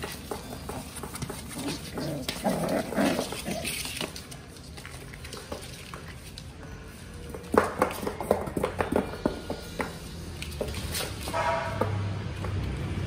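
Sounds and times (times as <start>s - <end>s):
paws scratching on cardboard: 0.0s - 9.6s.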